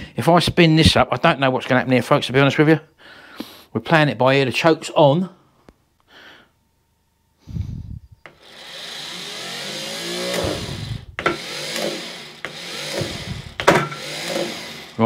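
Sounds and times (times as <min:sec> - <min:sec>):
starter motor whirring: 0:08.3 - 0:15.0.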